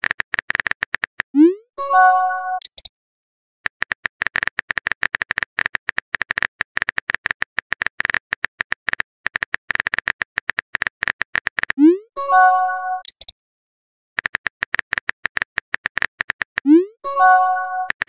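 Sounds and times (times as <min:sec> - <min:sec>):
phone keyboard tapping clicks: 0:03.7 - 0:11.8, 0:14.2 - 0:16.7.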